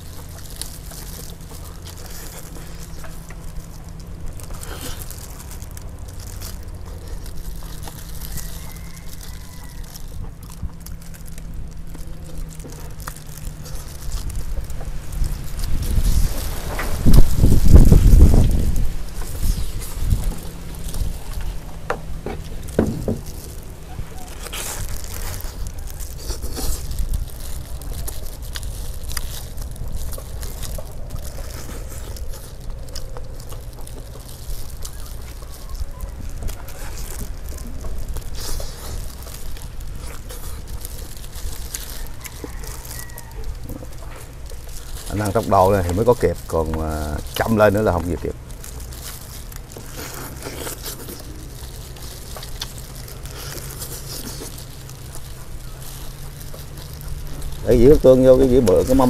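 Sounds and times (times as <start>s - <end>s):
low rumble: 0.0s - 45.5s
chewing and biting: 0.0s - 59.0s
plastic gloves crinkling: 0.0s - 59.0s.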